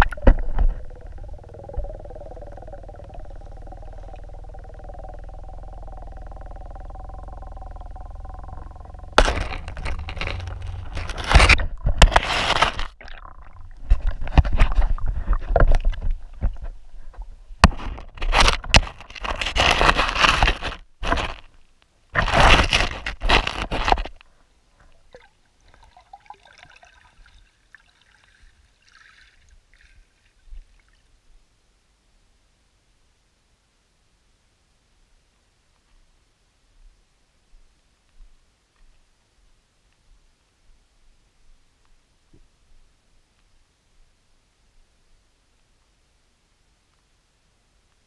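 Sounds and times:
faint ticks: 0:00.0 - 0:11.1
underwater scraping and gurgling: 0:00.0 - 0:21.6, 0:22.2 - 0:24.2.

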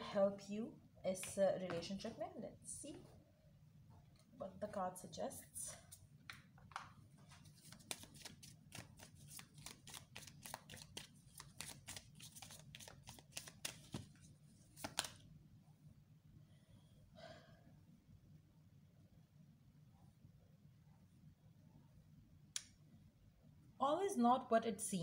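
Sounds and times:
cards being shuffled: 0:05.9 - 0:15.2.

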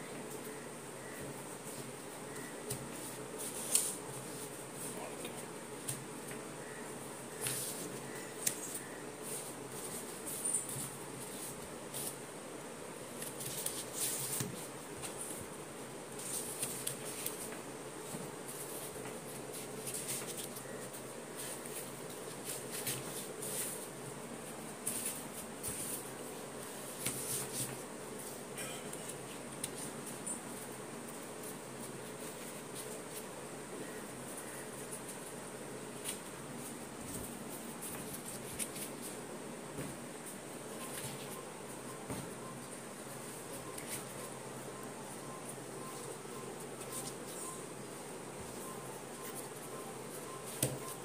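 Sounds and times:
faint steady hum: 0:00.0 - 0:51.0
foam tiles scraping and squeaking: 0:07.4 - 0:12.2.

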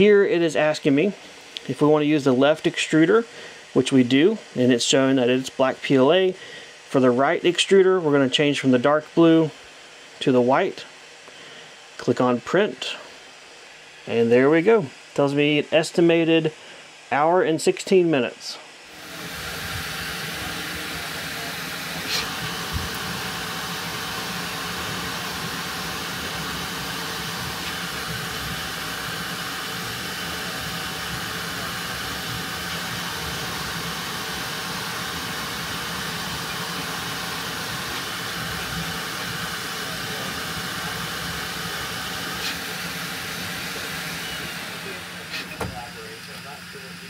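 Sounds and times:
printer fan noise: 0:00.0 - 0:47.0.

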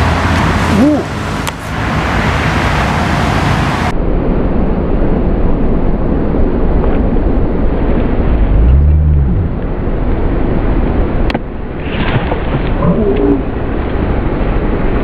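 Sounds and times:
loud steady rushing noise: 0:00.0 - 0:11.9.

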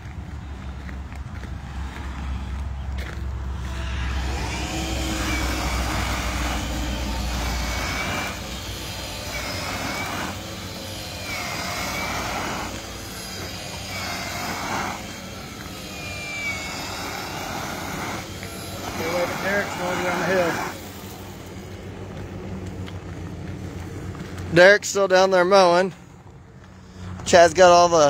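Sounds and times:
gravel spraying: 0:03.0 - 0:25.1
power broom motor whine: 0:03.4 - 0:23.2.

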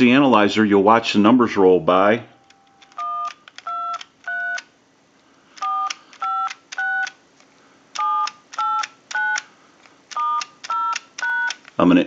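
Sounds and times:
faint steady hum: 0:00.0 - 0:12.0
touch-tone keypad beeps: 0:08.0 - 0:09.5, 0:10.1 - 0:11.6.

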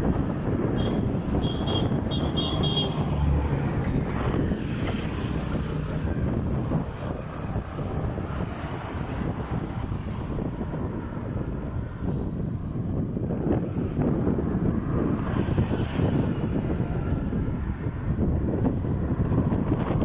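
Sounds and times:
road traffic hum: 0:00.0 - 0:20.0
wind rumbling on microphone: 0:00.0 - 0:20.0.

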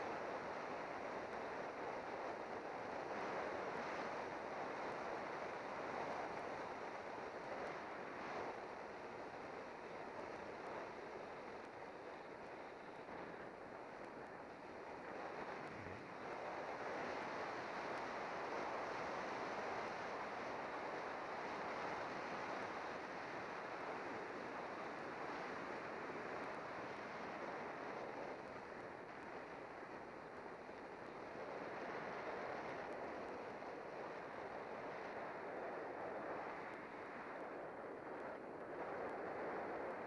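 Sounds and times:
wind rushing over microphone: 0:01.1 - 0:40.0.

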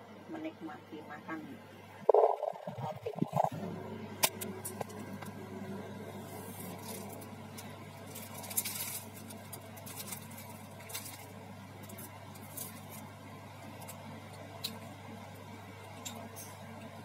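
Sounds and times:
steady low hum: 0:00.0 - 0:17.0
paper and plastic wrapper crinkling: 0:06.5 - 0:13.1.

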